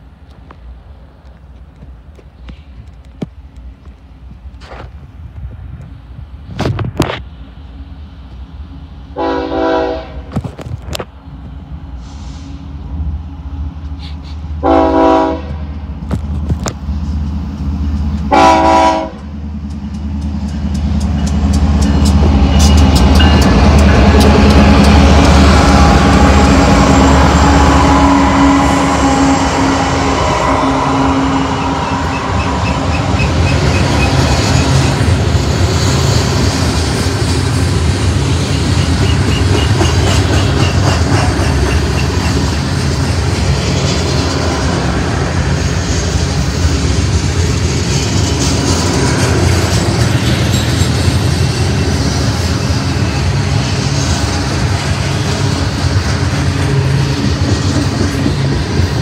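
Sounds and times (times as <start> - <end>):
diesel locomotive engine rumble: 0.0 - 59.0
train wheels clicking over rails: 15.4 - 30.3, 31.2 - 59.0.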